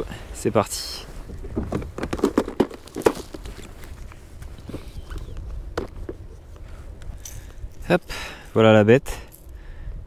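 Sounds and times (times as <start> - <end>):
fishing tackle clicks and knocks: 1.5 - 3.9.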